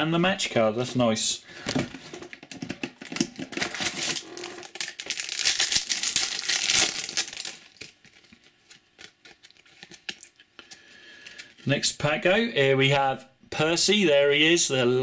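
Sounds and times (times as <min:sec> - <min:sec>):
foil wrapper crinkling: 0:03.1 - 0:11.5.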